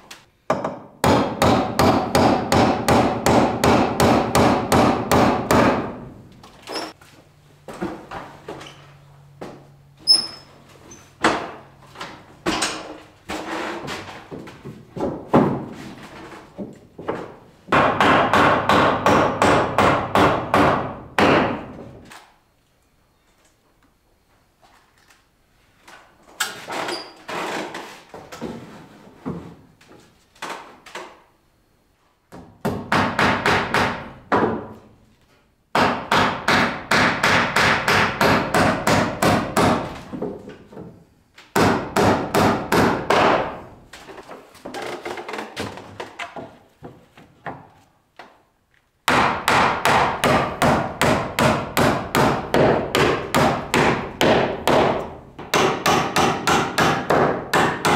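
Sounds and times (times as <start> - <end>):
hammer driving nails into wood: 0.5 - 6.0, 17.7 - 21.8, 32.3 - 34.7, 35.7 - 40.1, 41.5 - 43.6, 49.1 - 57.9.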